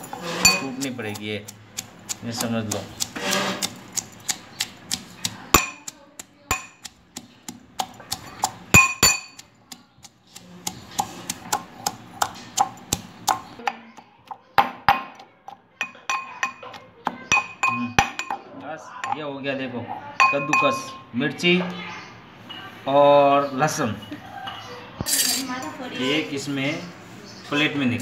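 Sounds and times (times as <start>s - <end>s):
metal pestle pounding in mortar: 0.0s - 18.4s.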